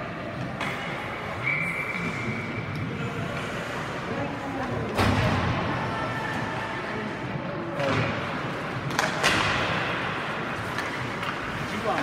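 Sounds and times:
arena noise: 0.0 - 12.0
hockey sticks and puck clacking: 0.3 - 2.2, 7.8 - 12.0.

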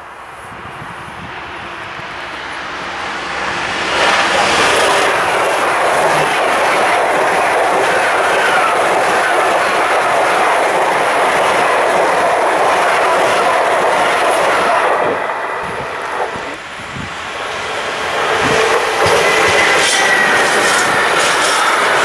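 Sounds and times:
high-speed train passing: 0.0 - 22.0.

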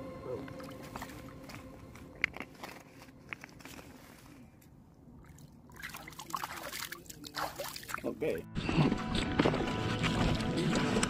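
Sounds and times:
water lapping and trickling: 0.2 - 8.4
hands splashing water: 5.2 - 8.1.

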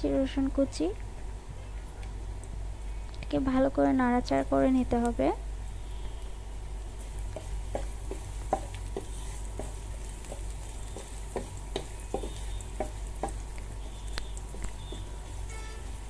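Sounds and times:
onion and garlic sizzling in oil: 2.2 - 16.0
spatula scraping and tapping pan: 7.0 - 16.0.

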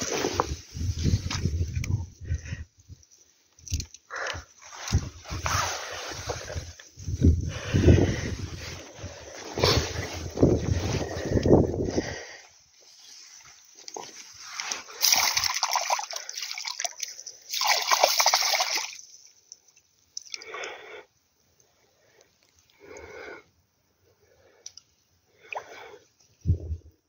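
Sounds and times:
fish splashing in water: 14.9 - 19.2.

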